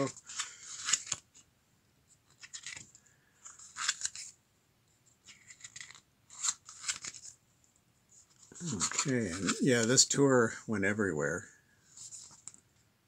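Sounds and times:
paper pages rustling: 0:00.0 - 0:01.5, 0:02.1 - 0:04.4, 0:05.1 - 0:07.4, 0:08.2 - 0:10.0, 0:11.8 - 0:12.8.

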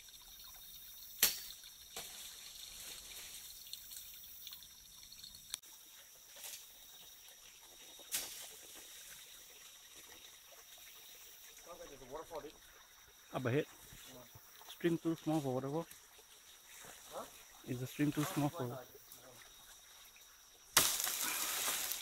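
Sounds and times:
twigs cracking in undergrowth: 0:20.8 - 0:22.0.

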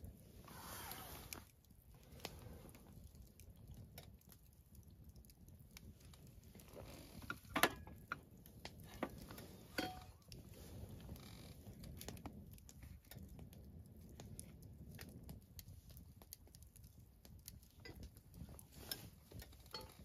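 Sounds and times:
dishes and utensils clinking: 0:09.7 - 0:10.2, 0:19.8 - 0:20.0.

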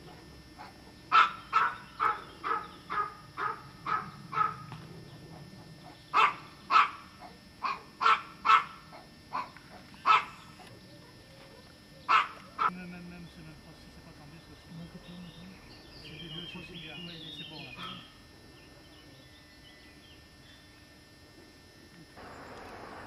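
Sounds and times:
dog barking: 0:00.6 - 0:04.7, 0:05.3 - 0:12.8.

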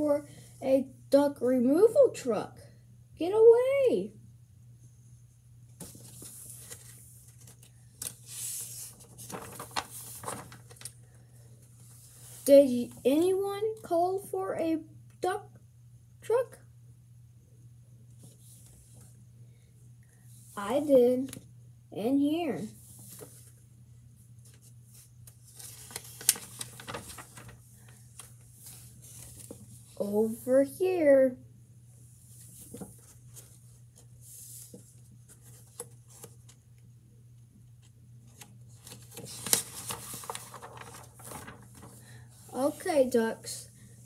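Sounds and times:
low steady hum: 0:00.0 - 0:44.0
paper pages rustling: 0:05.8 - 0:13.0, 0:22.8 - 0:23.6, 0:24.4 - 0:30.0, 0:32.3 - 0:36.6, 0:37.8 - 0:43.2.

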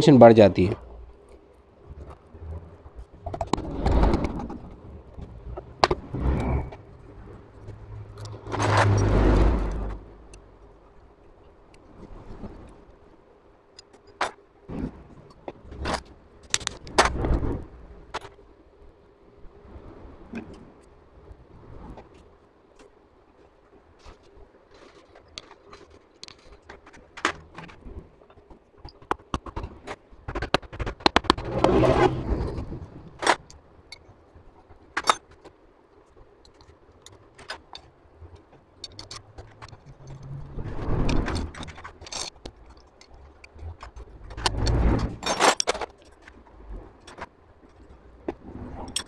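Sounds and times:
metal parts scraping: 0:38.9 - 0:42.8, 0:44.3 - 0:46.1.

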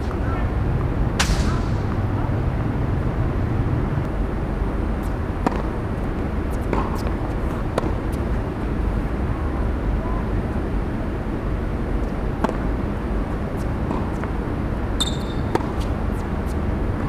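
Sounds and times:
low outdoor background rumble: 0:00.0 - 0:17.0
tennis ball struck by rackets: 0:01.1 - 0:02.0, 0:05.0 - 0:05.8, 0:06.5 - 0:08.4, 0:12.4 - 0:12.8, 0:13.6 - 0:14.4, 0:15.0 - 0:16.6.

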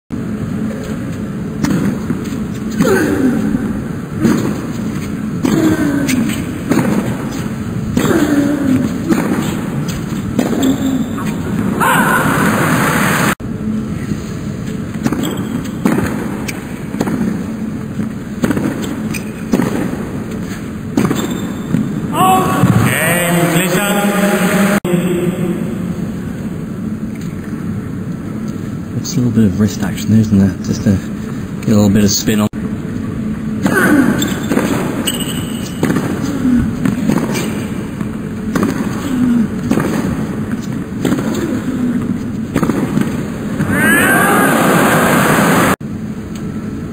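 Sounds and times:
arena background hum: 0:00.1 - 0:46.9
rackets striking tennis ball: 0:00.8 - 0:11.8, 0:14.7 - 0:22.8, 0:33.6 - 0:43.8
player grunting: 0:02.8 - 0:04.4, 0:05.4 - 0:06.4, 0:08.0 - 0:09.7.

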